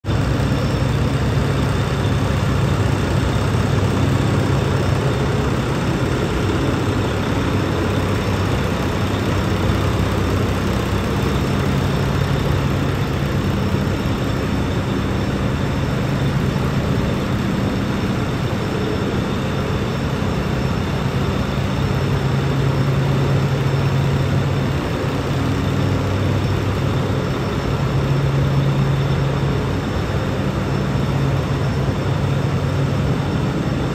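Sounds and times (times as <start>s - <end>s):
diesel truck engine idling: 0.1s - 33.9s.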